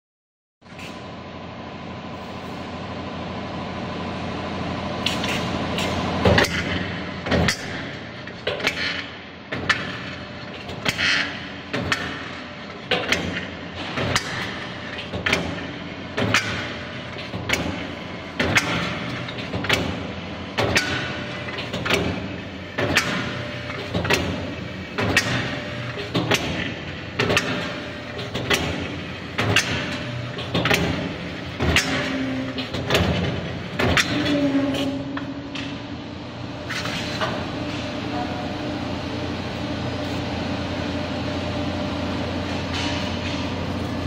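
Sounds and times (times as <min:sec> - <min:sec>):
machine hum: 0:00.7 - 0:44.0.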